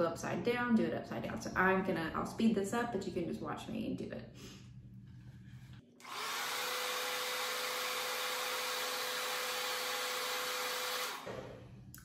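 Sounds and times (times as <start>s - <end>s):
hair dryer running: 6.0s - 11.6s.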